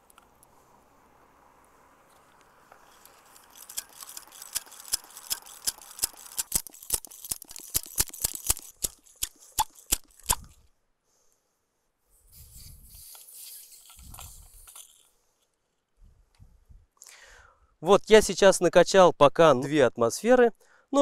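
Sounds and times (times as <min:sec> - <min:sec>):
hand air pump clicking: 0:02.7 - 0:10.6, 0:12.9 - 0:15.1.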